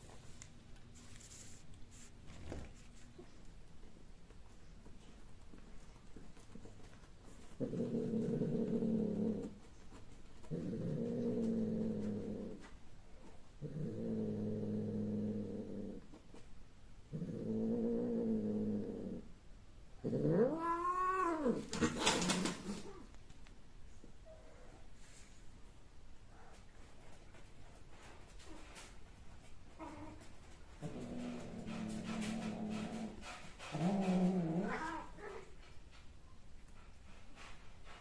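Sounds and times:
cats yowling: 20.2 - 21.9, 34.4 - 35.5.

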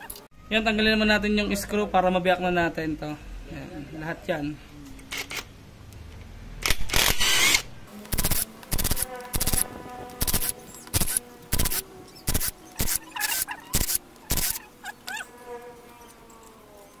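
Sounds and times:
cordless drill spinning screws: 6.6 - 14.6.

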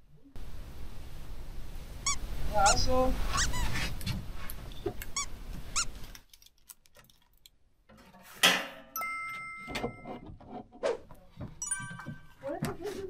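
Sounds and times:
short squeaks: 3.3 - 6.1
bright ringing chime: 9.0 - 10.2, 11.6 - 12.6.

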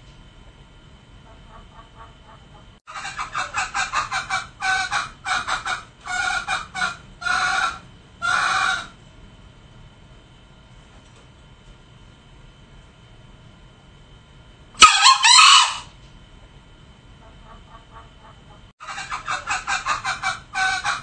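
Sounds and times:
junglefowl calling: 1.3 - 9.0, 14.8 - 15.9, 17.2 - 21.0.

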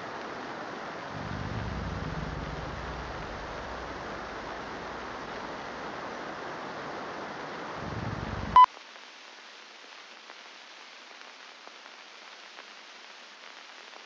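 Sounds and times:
static hiss: 0.0 - 14.0
light crackles: 0.2 - 14.0
low rumble: 1.1 - 6.2, 7.7 - 8.6.

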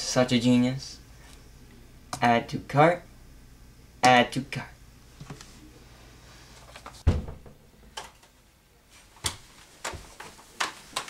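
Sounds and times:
door kicked open bang: 7.0 - 7.8.

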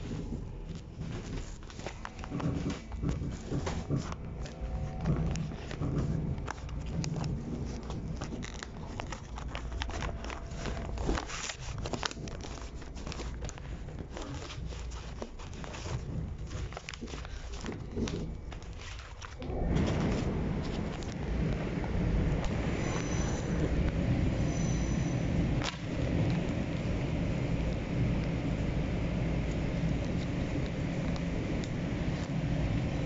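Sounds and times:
fabric rubbing on microphone: 0.0 - 26.2
train car rumble: 19.4 - 33.0.

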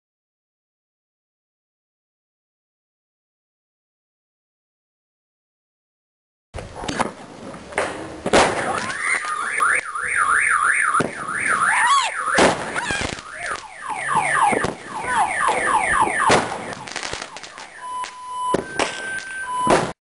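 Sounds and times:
firework cracks: 6.6 - 20.0
whistling firework: 8.4 - 20.0.

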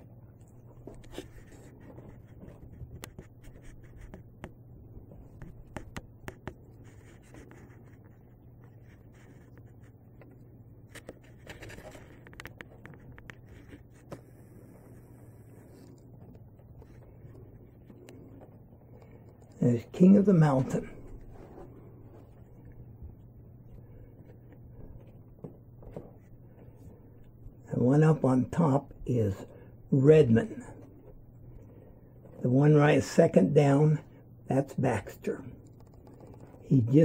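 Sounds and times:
steady low hum: 0.0 - 37.0
kitten claws scratching fabric: 0.6 - 18.4.

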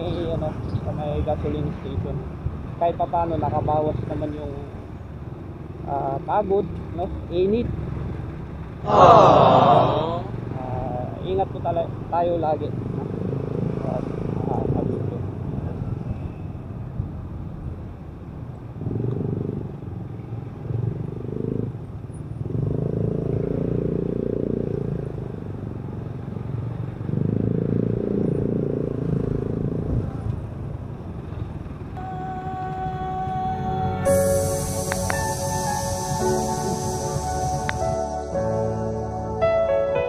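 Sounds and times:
road noise: 0.0 - 40.0
music: 33.5 - 40.0.

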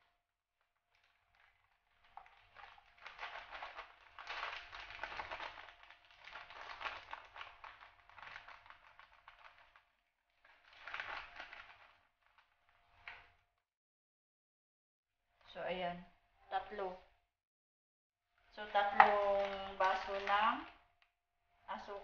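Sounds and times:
sugar pouring into pot: 1.1 - 9.8, 10.5 - 11.9.

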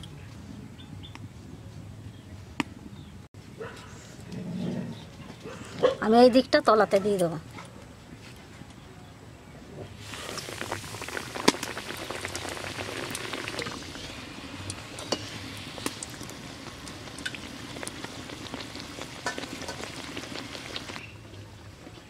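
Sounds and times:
flatbread sizzling in hot oil: 10.0 - 21.2
oil crackling and popping: 10.0 - 21.3.

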